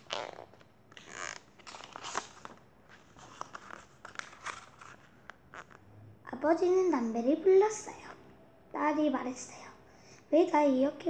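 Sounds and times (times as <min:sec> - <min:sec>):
book pages rustling: 0:00.0 - 0:05.8.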